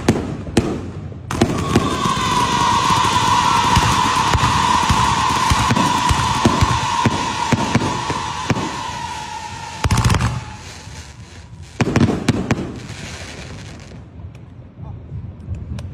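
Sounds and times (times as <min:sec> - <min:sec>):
firework bangs and crackles: 0:00.0 - 0:15.9
firework fountain hissing: 0:01.2 - 0:14.1
firework whistle: 0:01.3 - 0:13.6.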